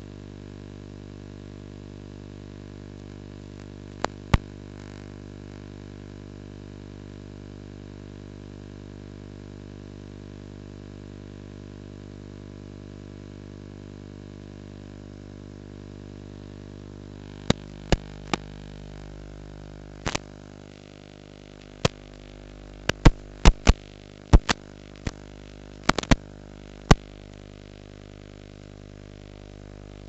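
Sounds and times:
electrical hum with hiss: 0:00.0 - 0:30.0
sharp clicks: 0:20.0 - 0:20.2, 0:22.8 - 0:25.2, 0:25.8 - 0:26.2.

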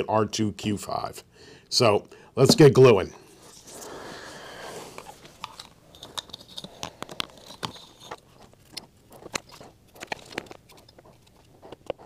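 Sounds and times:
handling clicks and taps: 0:05.4 - 0:12.0.

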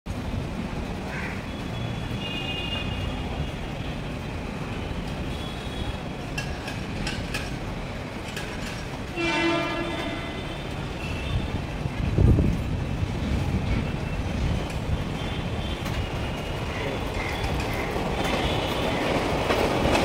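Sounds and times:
rail and traffic rumble: 0:00.1 - 0:20.0
distant train horns: 0:01.2 - 0:06.3, 0:09.1 - 0:11.8, 0:14.0 - 0:20.0.

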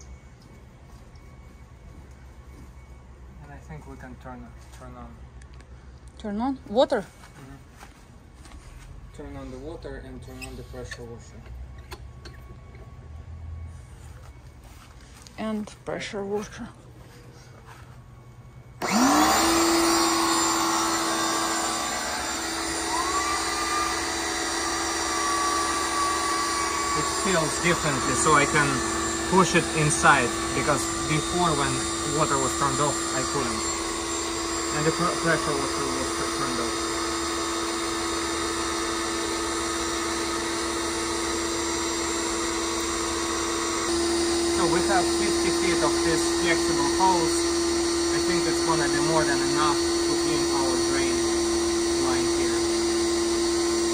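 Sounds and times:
higher whine: 0:08.4 - 0:53.9
pressure washer motor whining: 0:17.3 - 0:53.9.

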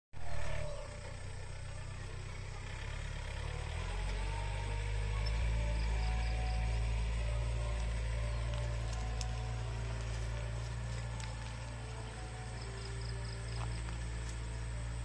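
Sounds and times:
tractor engine droning: 0:00.2 - 0:15.0.

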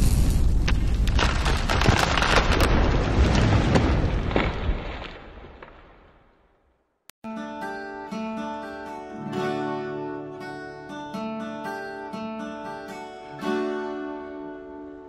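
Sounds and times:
scattered crackles: 0:00.0 - 0:06.7.

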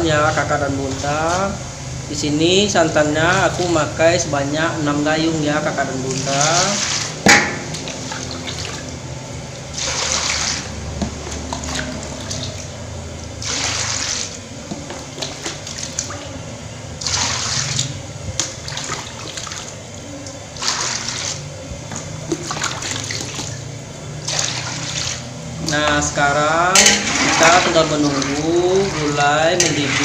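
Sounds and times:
low steady hum: 0:00.0 - 0:30.0
liquid pouring into a wok: 0:06.5 - 0:14.5.

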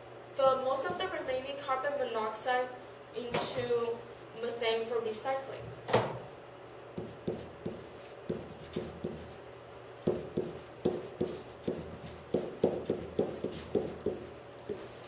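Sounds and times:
pen tapping on whiteboard: 0:07.0 - 0:09.3, 0:10.0 - 0:14.8.

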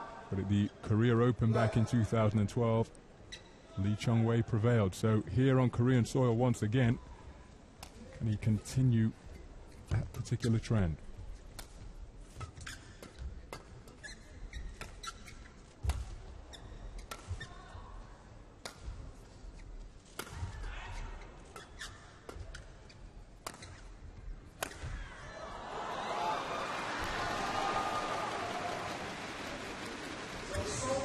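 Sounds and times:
shoes squeaking on court: 0:11.7 - 0:17.6, 0:20.9 - 0:24.9
racket striking shuttlecock: 0:24.5 - 0:25.0
crowd cheering and applauding: 0:25.5 - 0:31.0.

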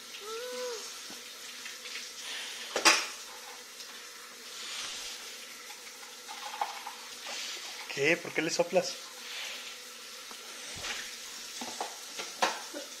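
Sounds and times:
child high vocal sound: 0:00.2 - 0:01.0.

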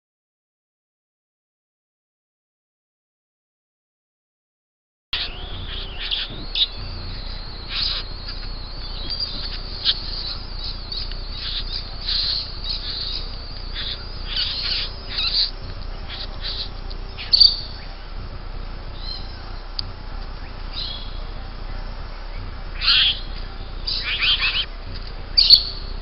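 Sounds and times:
birds chirping and calling: 0:05.2 - 0:26.0.

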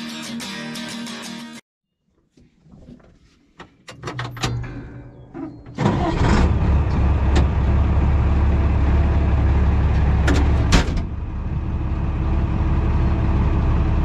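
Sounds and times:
tractor engine running: 0:04.6 - 0:14.0.

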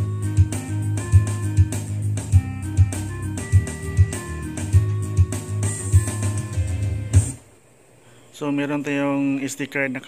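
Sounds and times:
heavy bass beat: 0:00.0 - 0:07.4
electronic karaoke backing music: 0:00.0 - 0:07.5.

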